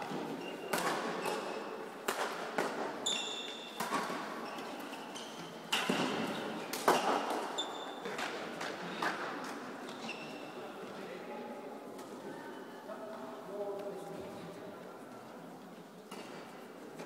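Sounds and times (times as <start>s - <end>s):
shoes squeaking on court floor: 0.0s - 2.0s, 2.6s - 9.0s, 9.8s - 10.9s
racket hitting shuttlecock: 0.6s - 5.0s, 5.7s - 9.2s.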